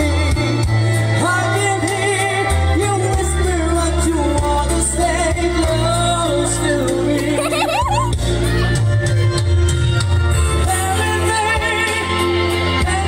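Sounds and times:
person singing a slow ballad: 0.0 - 8.8, 10.4 - 13.0
instrumental backing with bass: 0.0 - 13.0.

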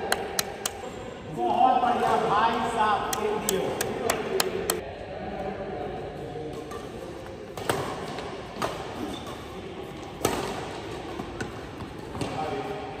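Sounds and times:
rackets hitting shuttlecock: 7.5 - 9.0, 10.1 - 12.4.

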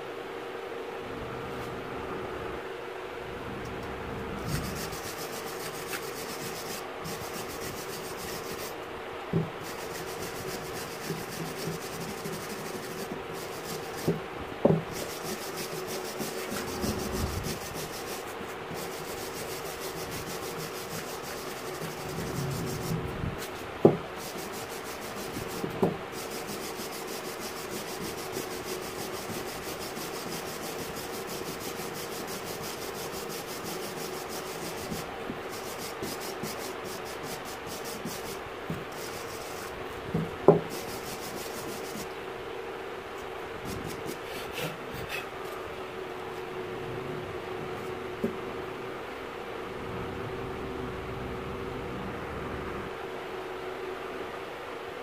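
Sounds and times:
wire brush scrubbing metal: 4.4 - 8.8, 9.5 - 14.2, 14.8 - 42.2, 43.6 - 45.4.

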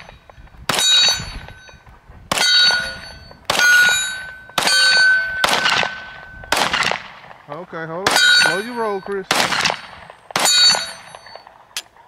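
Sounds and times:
steel target ringing: 0.0 - 6.6, 8.0 - 9.3, 10.4 - 11.5
pistol shots: 2.3 - 7.4, 8.0 - 11.4.

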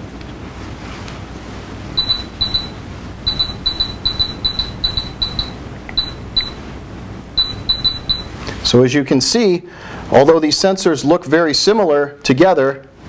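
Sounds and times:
short high-pitched electronic beeps: 2.0 - 6.6, 7.4 - 8.4.

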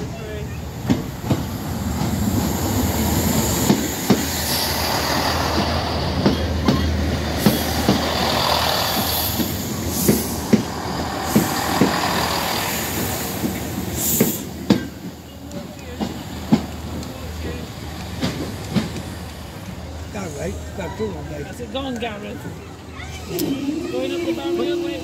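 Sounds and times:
diesel train engine hum: 0.0 - 25.0
train wheels clacking over rail joints: 0.8 - 19.8.

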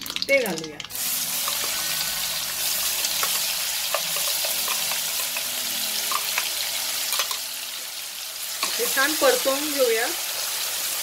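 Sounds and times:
oil crackles and clicks: 0.0 - 1.6
paste sizzling in hot oil: 0.0 - 11.0.

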